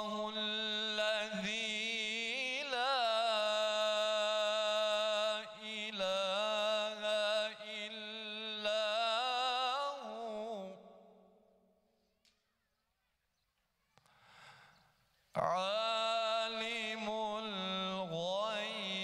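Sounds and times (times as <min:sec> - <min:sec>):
man chanting through loudspeakers: 0:00.0 - 0:10.8, 0:15.4 - 0:19.0.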